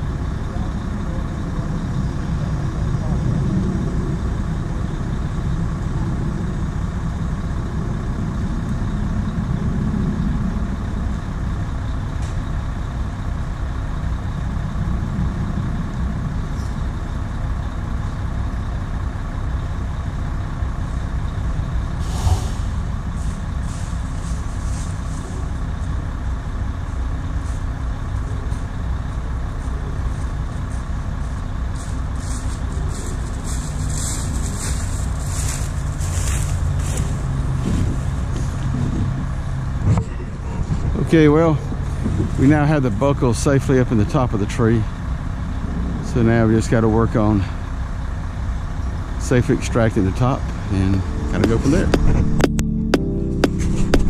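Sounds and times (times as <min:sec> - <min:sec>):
truck diesel engine running: 0:00.0 - 0:54.0
sharp knock: 0:22.0 - 0:22.7.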